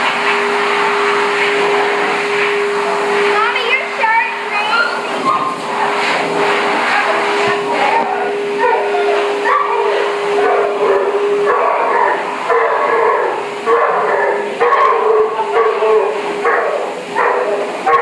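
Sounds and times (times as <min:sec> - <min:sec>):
blow dryer hissing and whining: 0:00.0 - 0:18.0
dog whimpering and yipping: 0:04.7 - 0:05.6.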